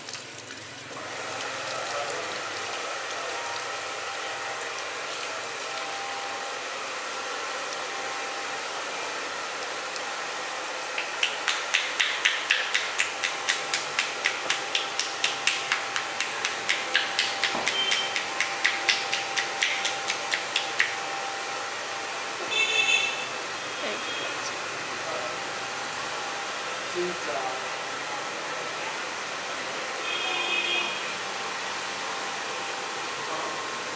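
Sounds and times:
hands slapping scalp: 10.9s - 21.0s.

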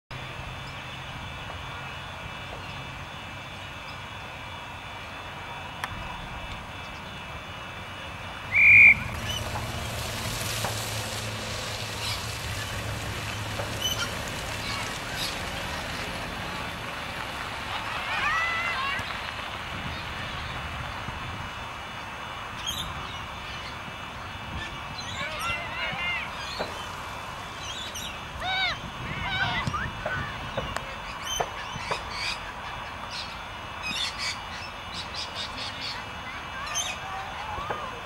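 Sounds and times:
outdoor background noise: 0.1s - 38.0s
whistle blast: 8.5s - 9.1s.

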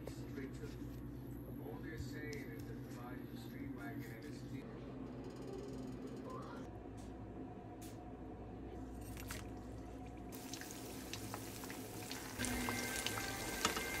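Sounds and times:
deep-frying sizzle with crackles: 10.3s - 14.0s
oil pouring into a wok: 10.4s - 14.0s.

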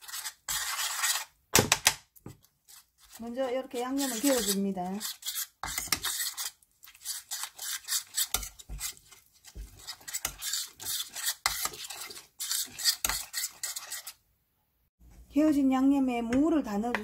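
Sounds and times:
metal spoon scraping a pot: 0.0s - 1.3s, 2.6s - 14.2s.

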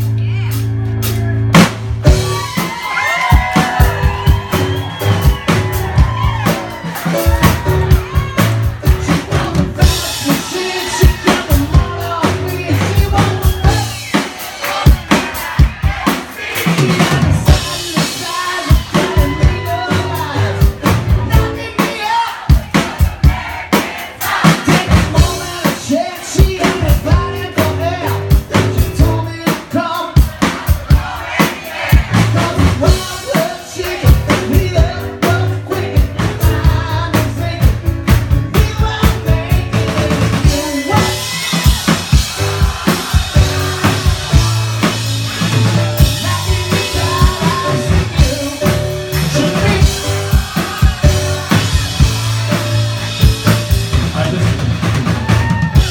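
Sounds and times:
piano: 0.0s - 16.0s, 16.6s - 23.3s, 24.5s - 31.2s, 31.9s - 55.9s
drum kit beat: 0.0s - 55.9s
man singing into a microphone: 8.8s - 14.0s, 16.7s - 22.5s, 24.8s - 30.4s, 32.3s - 41.6s, 45.7s - 51.0s.

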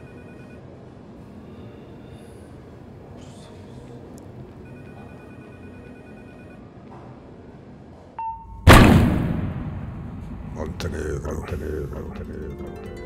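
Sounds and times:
short beep: 8.2s - 8.7s.

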